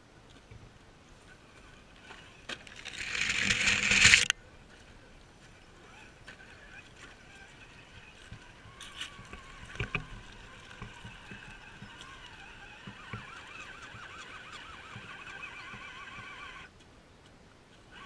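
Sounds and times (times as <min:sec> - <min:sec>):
toy car motor whining: 0:01.6 - 0:04.3, 0:05.8 - 0:16.7.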